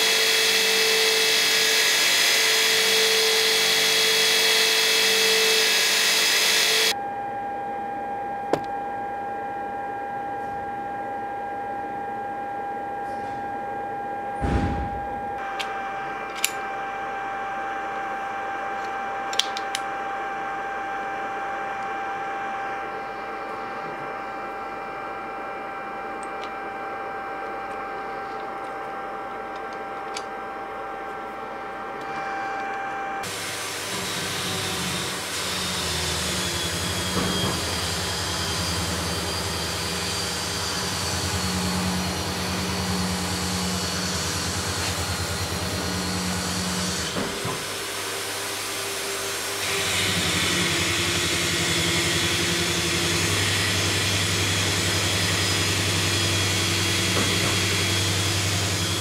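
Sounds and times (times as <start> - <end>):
electric motor running: 0.0 - 7.0, 32.0 - 59.0
steady machine hum: 0.0 - 59.0.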